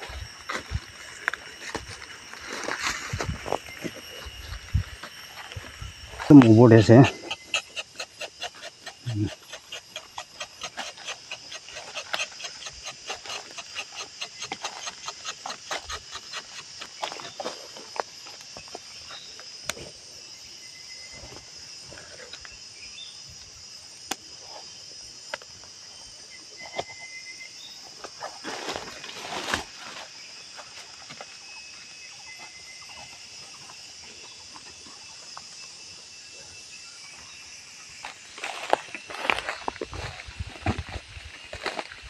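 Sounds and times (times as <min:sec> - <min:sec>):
footsteps crunching through dry leaves: 0:00.0 - 0:05.7
rustle: 0:00.0 - 0:07.0, 0:26.6 - 0:36.2
high-pitched insect chorus: 0:00.0 - 0:42.0.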